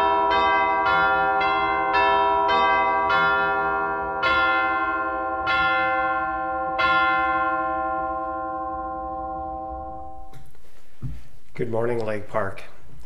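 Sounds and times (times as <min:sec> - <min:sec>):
chimes ringing: 0:00.0 - 0:10.4.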